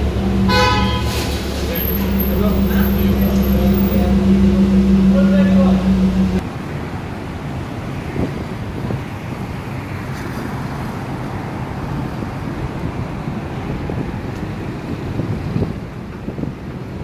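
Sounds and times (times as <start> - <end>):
low traffic noise: 0.0 - 17.0
wind rumbling on microphone: 0.0 - 17.0.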